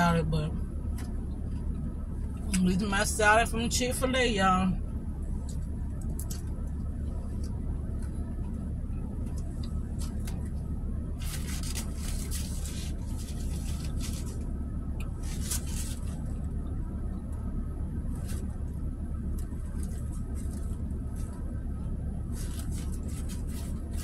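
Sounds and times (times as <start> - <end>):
low car interior hum: 0.0 - 24.0
paper napkin rustling: 11.2 - 14.5, 15.1 - 16.5, 18.1 - 21.5, 22.3 - 24.0.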